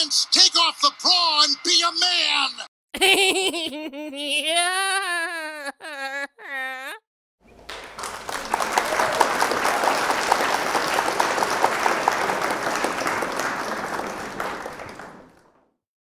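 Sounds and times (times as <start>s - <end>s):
crowd applause: 7.5s - 15.8s.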